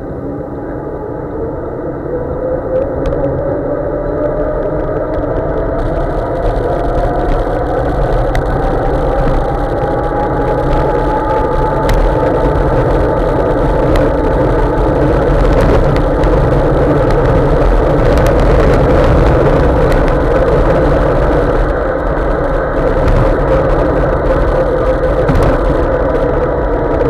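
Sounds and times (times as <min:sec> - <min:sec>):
wind roar on microphone: 0:00.0 - 0:27.0.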